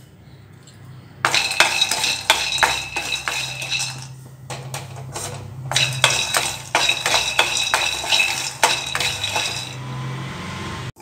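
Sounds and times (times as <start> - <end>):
nuts rattling in metal pan: 1.2 - 9.8
pan ringing: 1.2 - 10.0.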